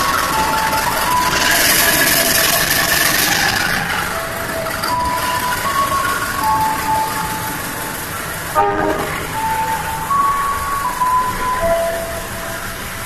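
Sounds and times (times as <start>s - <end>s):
melody of held notes: 0.0s - 13.0s
train wheels rumbling on rail: 0.0s - 13.0s
short horn toot: 8.6s - 9.4s.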